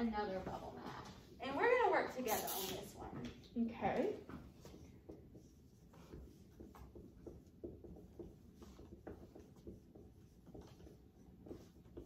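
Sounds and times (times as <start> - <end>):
marker squeaking on whiteboard: 2.3 - 3.0, 4.5 - 12.0.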